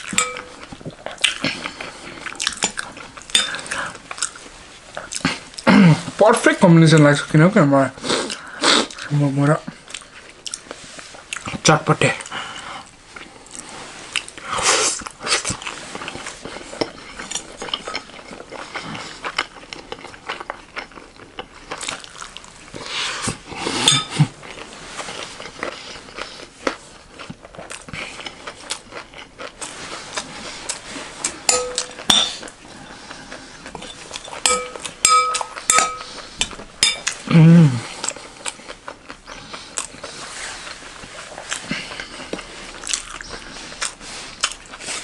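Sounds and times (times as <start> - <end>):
chewing and crunching: 0.0 - 6.2, 8.2 - 45.0
spoon clinking in glass bowl: 0.1 - 0.7, 23.9 - 24.1, 31.5 - 32.4, 34.3 - 36.1, 36.8 - 37.2.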